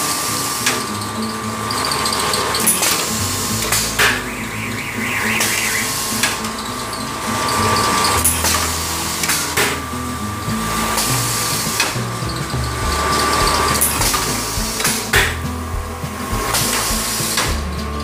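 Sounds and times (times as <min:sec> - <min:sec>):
machine mechanical hum: 0:00.0 - 0:18.0
sharp machine knock: 0:11.6 - 0:17.7.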